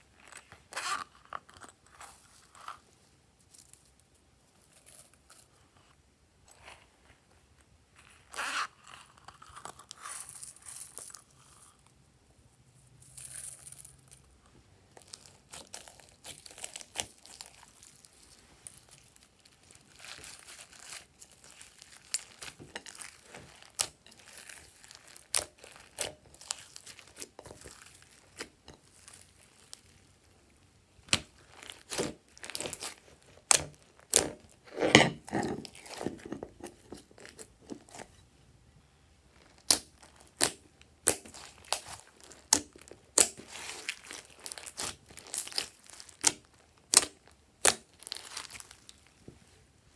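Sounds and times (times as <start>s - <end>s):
slime squeezed by hand crackling: 39.4s - 49.1s.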